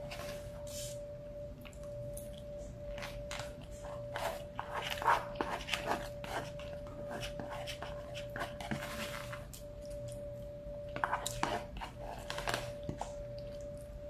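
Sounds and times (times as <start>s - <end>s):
faint hum: 0.0s - 14.0s
plastic fork scraping foam bowl: 4.1s - 9.4s.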